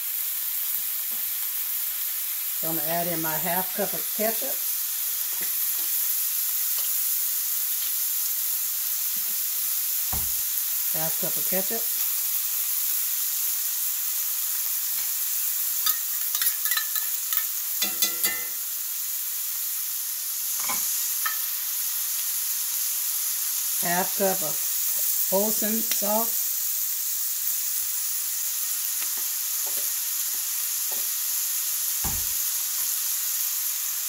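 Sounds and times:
beef sizzling in a skillet: 0:00.0 - 0:34.0.

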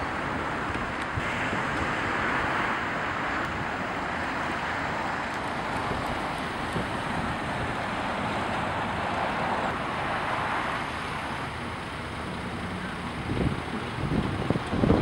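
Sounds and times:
wind on microphone: 0:00.0 - 0:09.6, 0:13.1 - 0:15.0
street traffic: 0:00.0 - 0:15.0.

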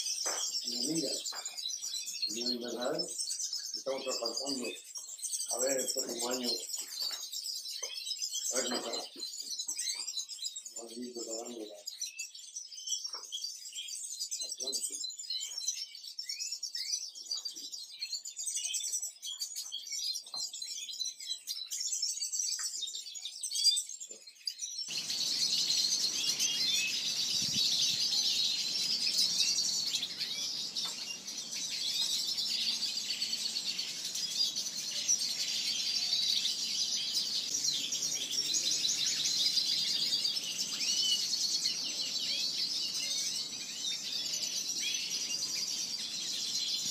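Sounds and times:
finches chirping and twittering: 0:00.0 - 0:46.9.

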